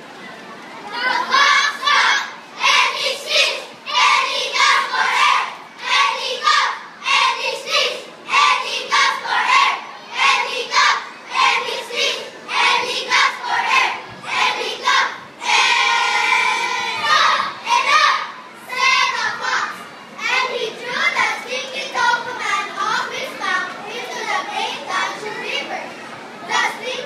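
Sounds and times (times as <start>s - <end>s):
children chanting in unison: 0.9s - 22.4s
children singing long note: 0.9s - 22.4s.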